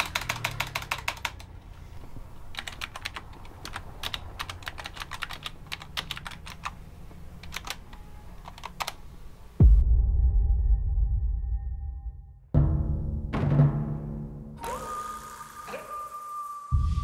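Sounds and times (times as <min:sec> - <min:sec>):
computer keyboard typing: 0:00.0 - 0:01.5, 0:02.5 - 0:06.8, 0:07.4 - 0:09.0.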